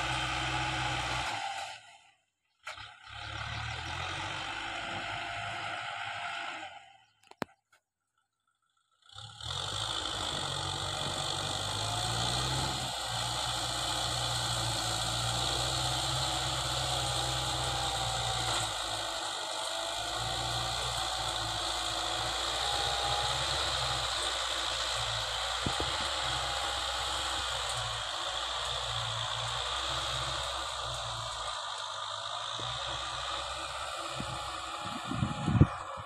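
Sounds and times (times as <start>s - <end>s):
tractor diesel engine running: 0.0s - 7.4s, 8.4s - 36.0s
rotary tiller churning soil: 9.7s - 36.0s.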